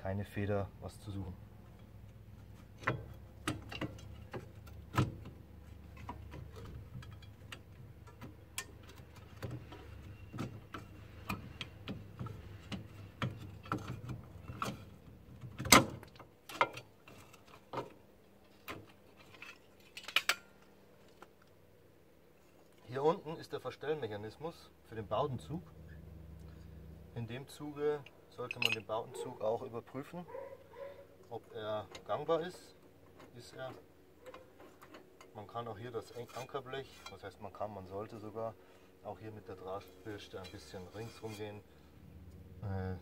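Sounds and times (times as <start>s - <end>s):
metallic clicks and clinks: 28.4s - 28.9s.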